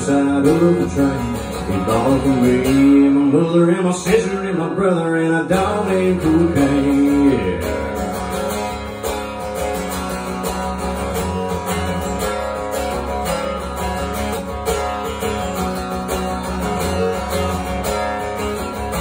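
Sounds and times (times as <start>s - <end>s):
acoustic guitar strumming: 0.0s - 19.0s.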